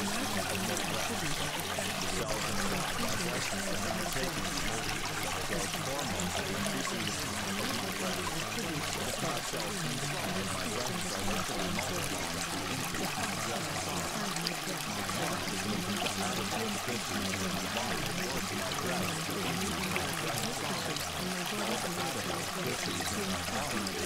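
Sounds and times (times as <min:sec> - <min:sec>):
water rushing noise: 0:00.0 - 0:24.0.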